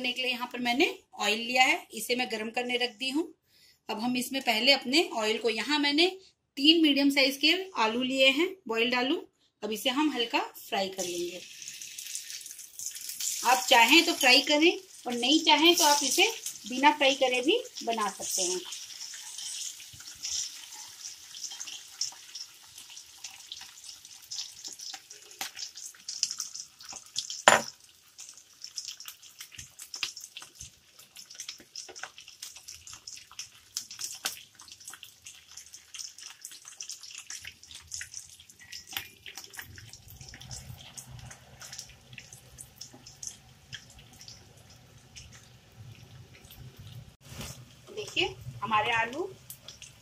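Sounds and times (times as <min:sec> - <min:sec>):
oil sizzling and crackling: 0:10.6 - 0:50.0.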